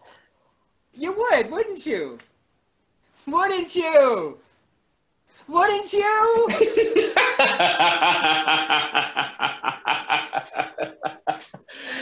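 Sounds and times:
man laughing hard: 6.5 - 12.0.

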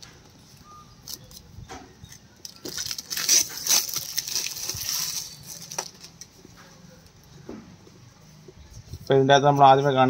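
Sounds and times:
plastic shrink wrap crinkling: 2.4 - 6.4.

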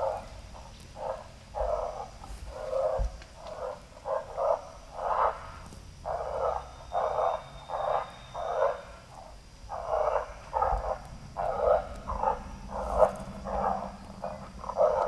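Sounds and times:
electronic coyote pup yelps: 1.0 - 15.0.

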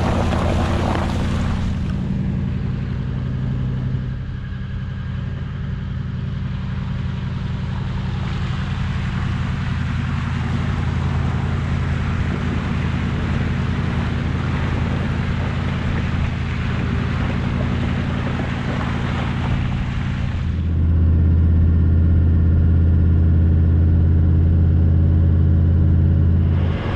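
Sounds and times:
tyre and wind noise: 0.0 - 2.2, 9.2 - 20.8
car engine running: 0.0 - 26.9.

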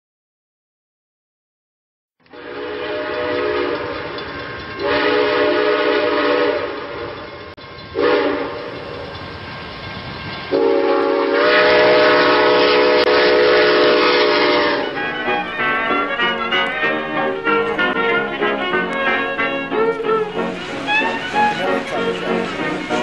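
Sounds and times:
train horn blasts: 2.2 - 4.2, 4.8 - 7.1, 8.0 - 8.7, 10.5 - 23.0.

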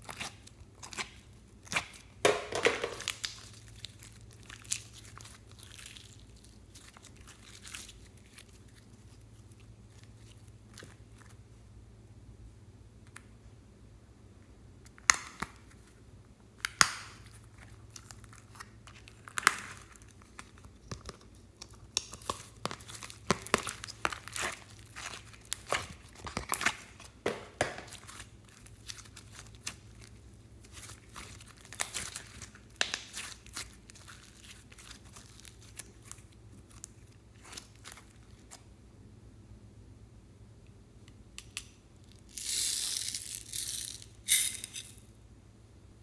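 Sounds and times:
slime crackling and popping: 0.0 - 11.0, 16.6 - 38.6
plastic crinkling: 0.0 - 11.4, 17.0 - 38.6.

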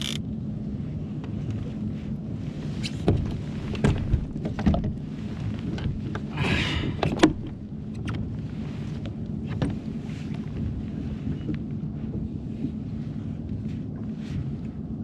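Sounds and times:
fishing gear clicking and knocking: 0.0 - 0.2
low hum: 0.0 - 15.0.

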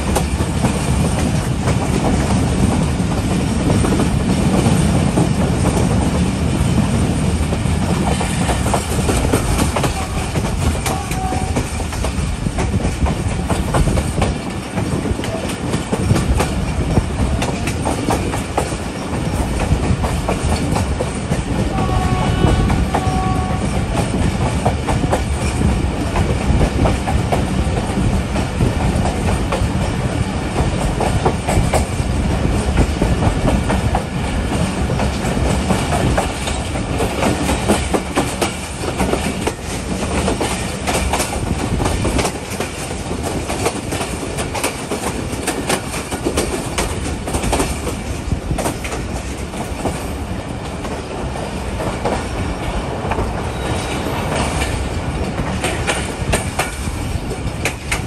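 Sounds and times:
train rumble and rushing: 0.0 - 58.0
train wheels clattering over rails: 0.0 - 58.0.

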